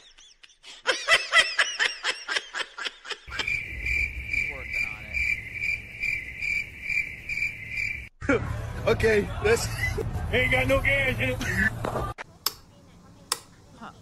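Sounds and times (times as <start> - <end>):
cricket chirping: 3.3 - 8.1.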